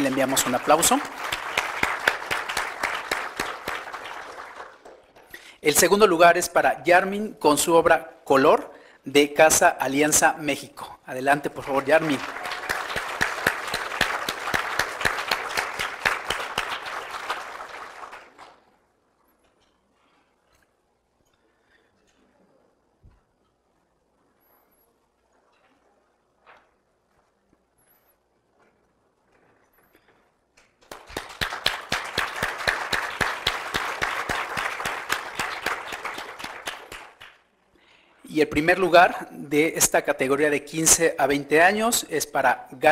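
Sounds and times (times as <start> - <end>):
audience applauding: 0.0 - 5.5, 11.3 - 18.8, 30.6 - 37.5.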